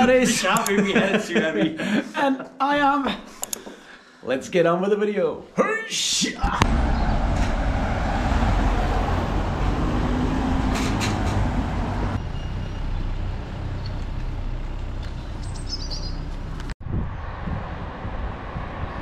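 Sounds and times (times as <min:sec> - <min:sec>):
traffic on wet street: 0:06.6 - 0:16.8
bird chirp: 0:15.1 - 0:16.4
wind rumble on microphone: 0:16.6 - 0:19.0.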